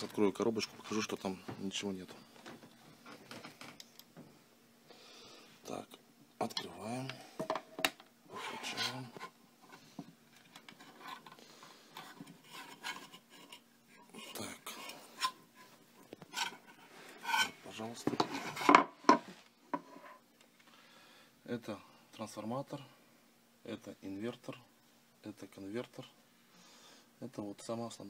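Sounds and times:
sheet-metal cover scraping: 0:08.3 - 0:09.3, 0:14.2 - 0:20.2.

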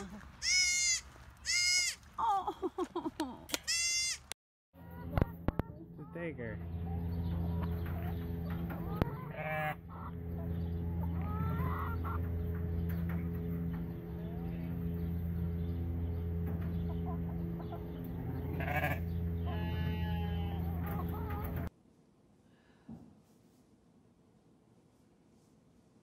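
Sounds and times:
hens clucking: 0:04.8 - 0:21.7
steady low hum: 0:04.8 - 0:21.7.

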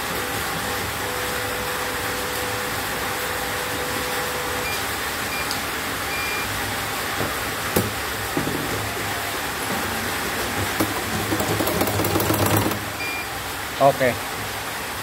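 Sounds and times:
short electronic beeps: 0:04.3 - 0:06.5, 0:13.0 - 0:13.4.

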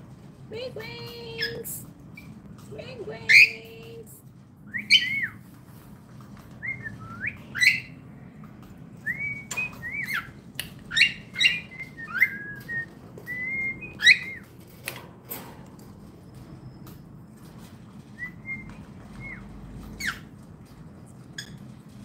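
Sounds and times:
cockatiel whistling: 0:04.7 - 0:05.4, 0:06.6 - 0:08.0, 0:09.1 - 0:10.3, 0:10.9 - 0:14.5.

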